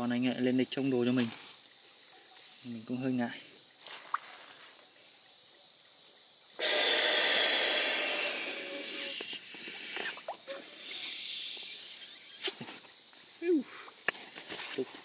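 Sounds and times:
crickets chirping: 0.0s - 15.0s
blowing air into pillow valve: 6.6s - 12.6s.

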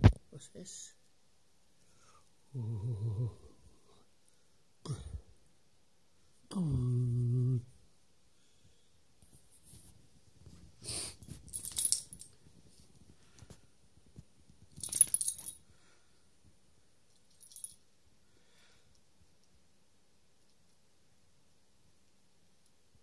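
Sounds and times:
dog collar tag jingling: 11.3s - 12.4s, 14.8s - 15.6s, 17.1s - 17.8s.

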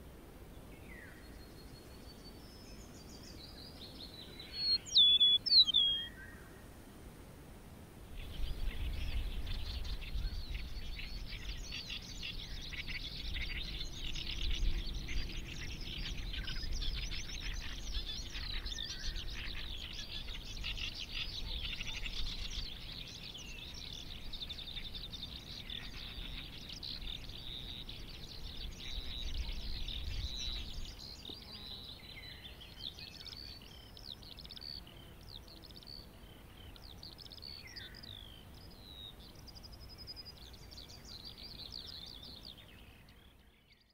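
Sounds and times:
lark singing: 1.1s - 6.3s.

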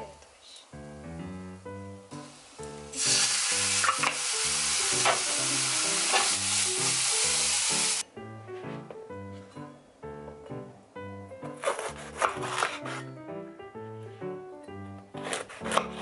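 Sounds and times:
food sizzling in frying pan: 2.1s - 8.0s.

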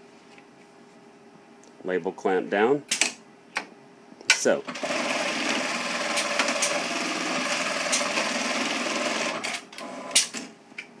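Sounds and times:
sewing machine stitching: 4.7s - 10.2s.

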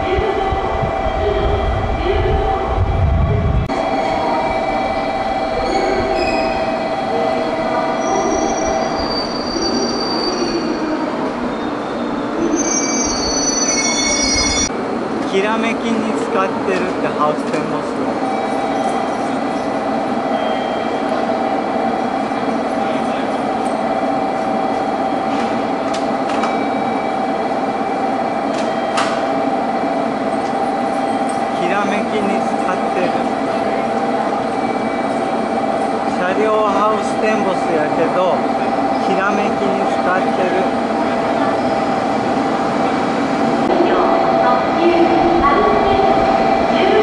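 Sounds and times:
train rumbling on rails: 0.0s - 47.0s
high-pitched wheel squeal: 5.6s - 6.8s, 11.5s - 14.7s.

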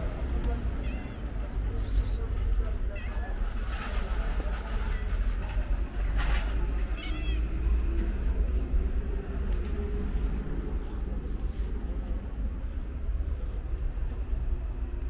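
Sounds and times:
steady low rumble: 0.0s - 15.0s
cat meowing: 0.7s - 1.4s, 7.0s - 7.6s.

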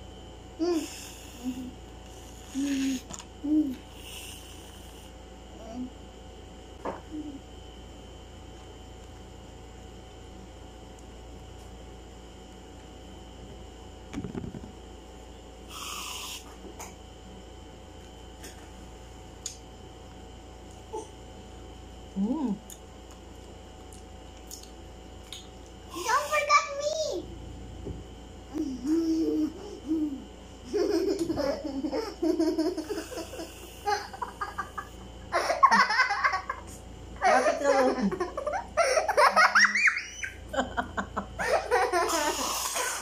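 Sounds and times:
aerosol cream can hissing: 15.7s - 16.5s
girl giggling and laughing: 28.7s - 43.0s.

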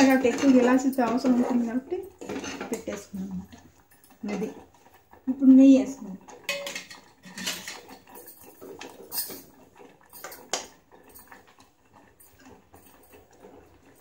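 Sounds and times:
kitchen utensils clinking: 0.0s - 4.6s, 6.3s - 11.5s.

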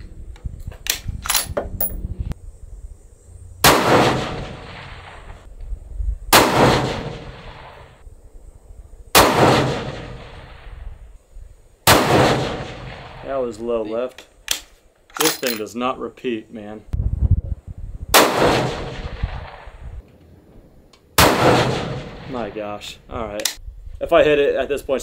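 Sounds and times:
rifle shots with echo: 3.6s - 5.5s, 6.3s - 8.0s, 9.2s - 10.8s, 11.8s - 13.4s, 18.1s - 19.9s, 21.2s - 22.9s
sharp rifle clicks: 14.2s - 15.7s, 23.3s - 23.6s.

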